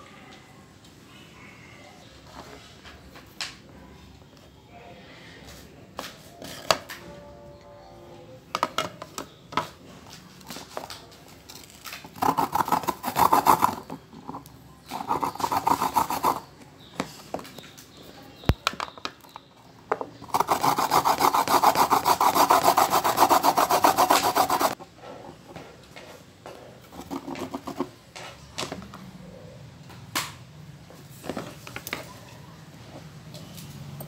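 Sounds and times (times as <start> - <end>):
food rasping on a grater: 12.1 - 14.0, 14.8 - 16.5, 20.3 - 24.8.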